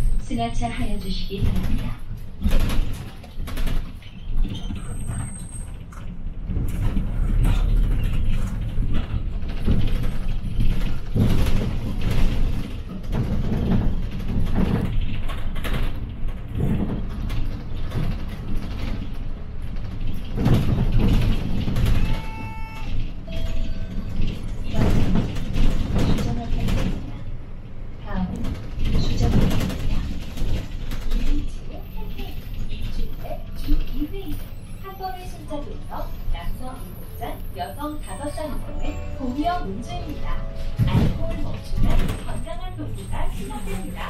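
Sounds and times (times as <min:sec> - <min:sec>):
bus engine and road rumble: 0:00.0 - 0:44.0
rattles and knocks in bus cabin: 0:00.0 - 0:44.0.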